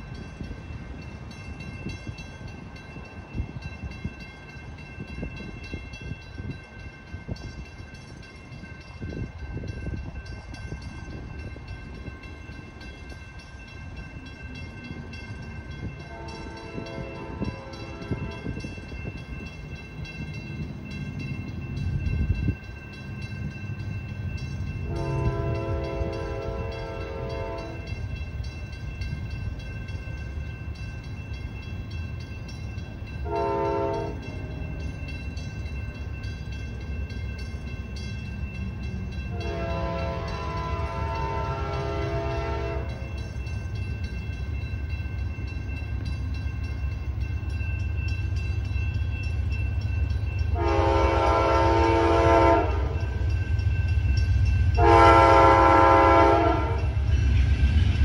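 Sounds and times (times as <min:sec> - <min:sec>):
low rumble of train: 0:00.0 - 0:58.0
train air horn blasts: 0:16.0 - 0:18.6, 0:24.8 - 0:27.9, 0:33.2 - 0:34.2, 0:39.3 - 0:43.0, 0:50.5 - 0:53.0, 0:54.8 - 0:57.0.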